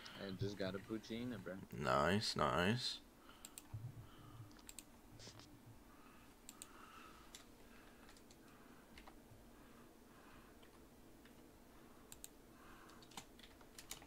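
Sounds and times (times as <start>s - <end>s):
faint irregular clicks and taps: 3.4s - 5.5s, 6.4s - 9.2s, 10.5s - 11.5s, 12.1s - 14.0s.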